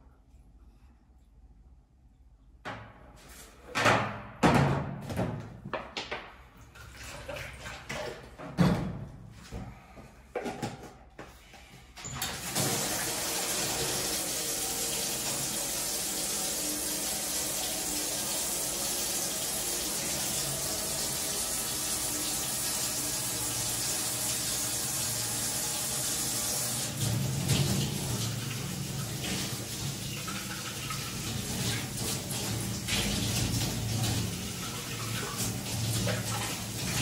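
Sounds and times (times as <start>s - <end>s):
tap water splashing into metal sink: 25.8s - 37.0s.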